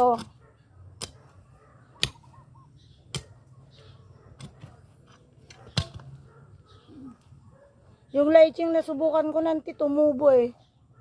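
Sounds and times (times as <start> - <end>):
digging tool striking soil: 0.9 - 1.3, 2.0 - 2.3, 3.0 - 3.4, 4.4 - 6.2.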